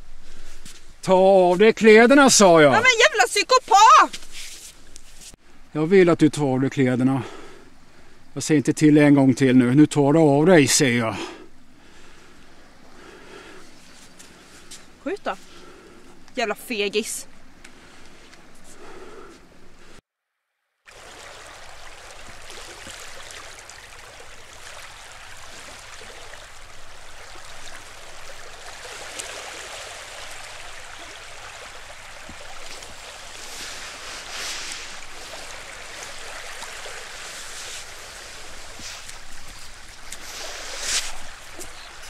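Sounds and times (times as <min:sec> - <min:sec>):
surf washing over sand: 0:20.9 - 0:42.0.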